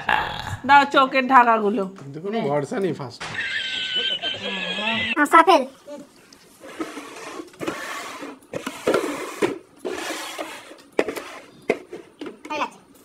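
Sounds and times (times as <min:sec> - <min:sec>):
plastic bowls scraping on a table: 0:06.6 - 0:12.4.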